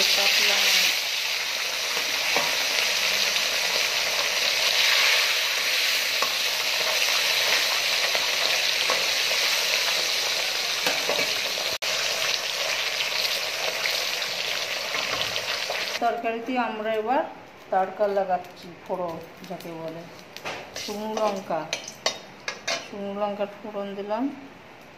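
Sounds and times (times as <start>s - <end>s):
food sizzling in hot oil: 0.0s - 16.1s, 17.8s - 23.0s.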